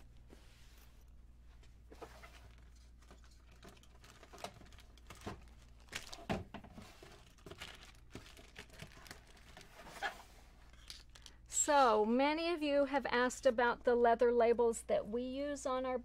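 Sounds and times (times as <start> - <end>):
fabric bags rustling: 1.7 - 11.2.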